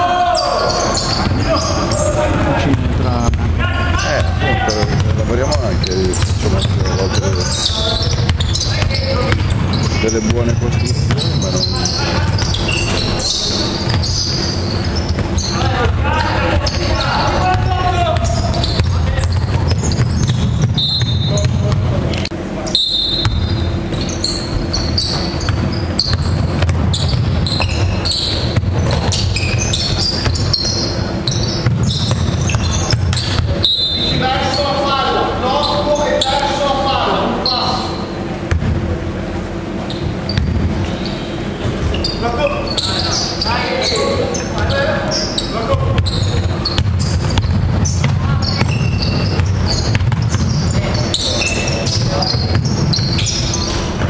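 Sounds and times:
low hall rumble: 0.0s - 54.0s
sneaker squeaks: 0.0s - 54.0s
basketball bouncing on wooden court: 0.7s - 22.4s, 23.1s - 34.6s, 38.4s - 38.8s, 39.9s - 40.9s, 45.8s - 54.0s.

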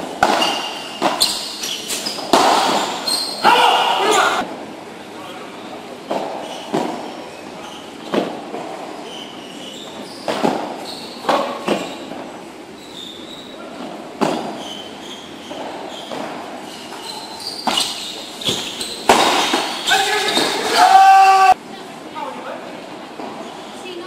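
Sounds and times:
rackets striking ball: 0.0s - 4.1s, 6.1s - 7.1s, 10.2s - 12.2s, 13.8s - 14.6s, 15.5s - 20.9s
ball bouncing on court: 0.1s - 3.3s, 17.6s - 20.7s.

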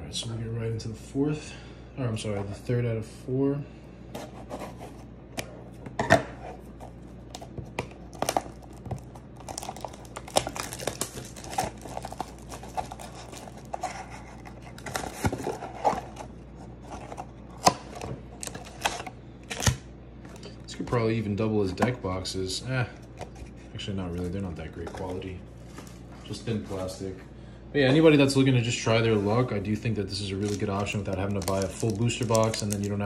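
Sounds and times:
plastic wrap crinkling: 6.9s - 20.6s, 30.1s - 33.0s
scissors snipping plastic wrap: 9.4s - 13.5s, 30.4s - 33.0s.

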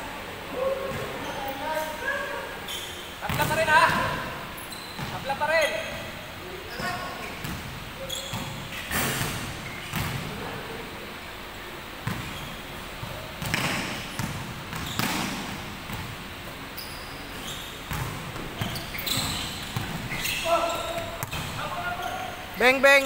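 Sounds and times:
basketball bouncing on wooden floor: 17.9s - 20.2s, 21.0s - 21.6s.

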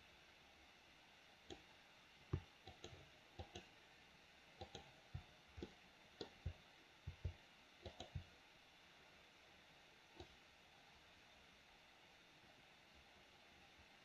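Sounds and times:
faint hiss: 0.0s - 14.0s
mouse and keyboard clicking: 2.7s - 3.7s, 4.6s - 4.9s, 5.6s - 8.2s.

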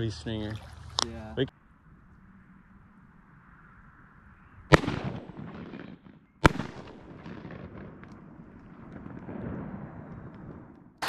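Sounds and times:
shotgun shots with echo: 4.7s - 8.1s.

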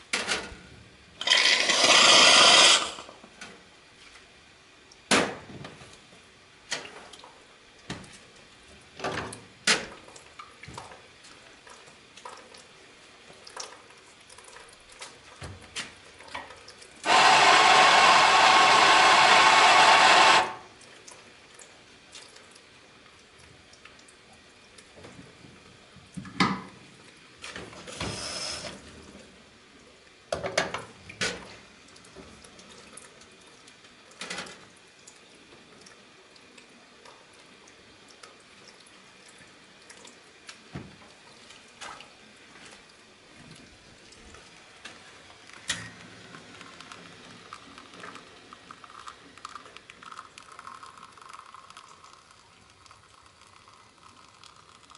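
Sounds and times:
electric coffee grinder running: 1.2s - 3.1s, 17.1s - 20.7s.

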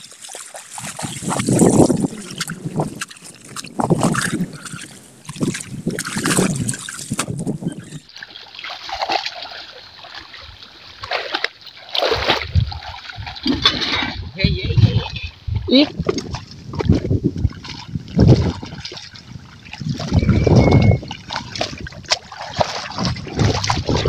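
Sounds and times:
plants pulled from water: 0.0s - 8.0s
muddy water splashing: 0.0s - 24.0s.

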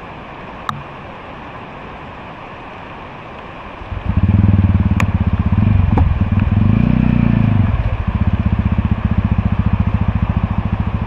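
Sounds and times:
motorcycle engine running: 3.8s - 11.0s.

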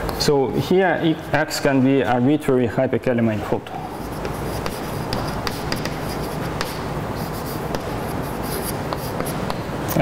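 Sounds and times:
chalk writing on blackboard: 3.8s - 9.7s.

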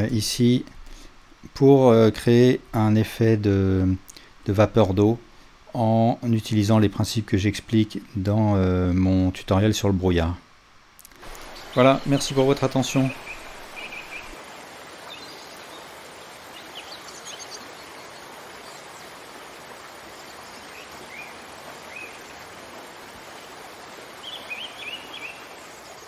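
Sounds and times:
birds chirping: 11.0s - 26.0s
falling water rushing: 11.1s - 26.0s.

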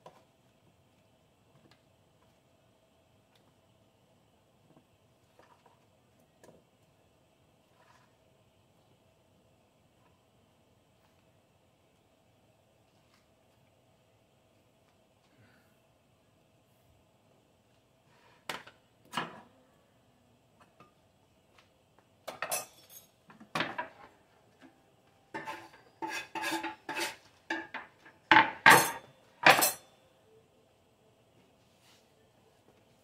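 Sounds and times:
kitchenware clinks and knocks: 22.3s - 24.1s, 25.3s - 29.9s.

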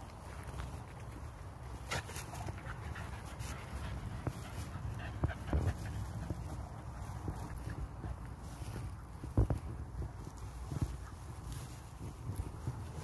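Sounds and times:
dry hay rustling: 0.0s - 13.0s
dogs panting: 1.2s - 9.0s.

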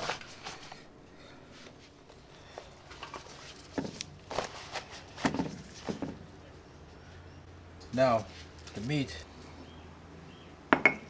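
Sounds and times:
leaves rustling and crinkling: 1.8s - 6.4s, 8.0s - 9.6s.

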